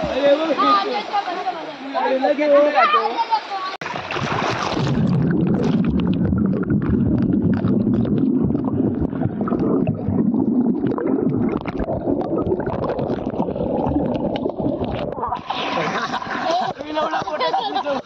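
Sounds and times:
bubbles popping and gurgling: 3.8 - 16.2
underwater rumble of stirred water: 3.8 - 16.7.

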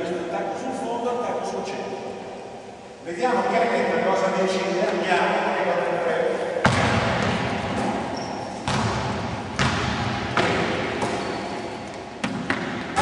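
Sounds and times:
basketball bouncing on gym floor: 6.6 - 11.6, 12.2 - 13.0.

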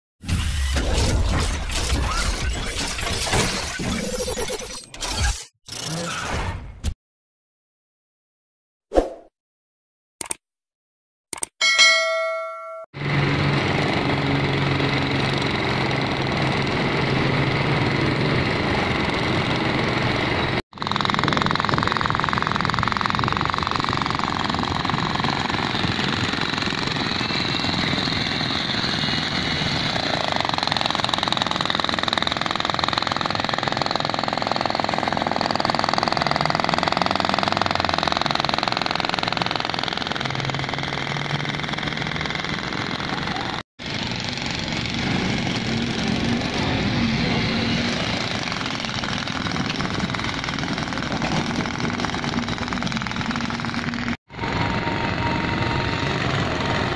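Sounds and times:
portable generator running: 12.3 - 31.5, 36.4 - 56.9
demolition hammer breaking asphalt: 47.8 - 54.2.

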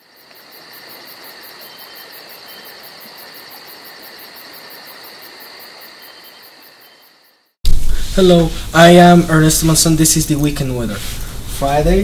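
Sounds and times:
crickets chirping: 0.0 - 8.1.

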